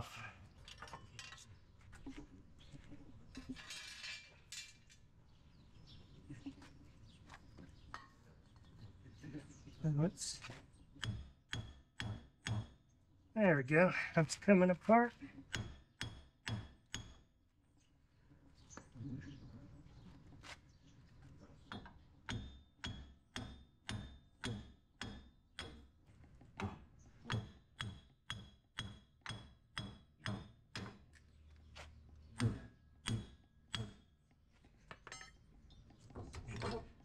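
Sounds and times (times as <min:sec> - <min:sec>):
hammer striking metal: 0:27.3 - 0:30.9
light metal clinks: 0:35.0 - 0:35.4.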